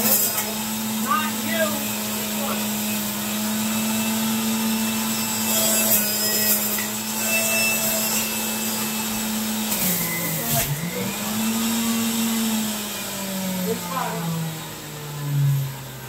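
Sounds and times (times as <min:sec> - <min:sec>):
juicer motor humming and whirring: 0:00.0 - 0:16.0.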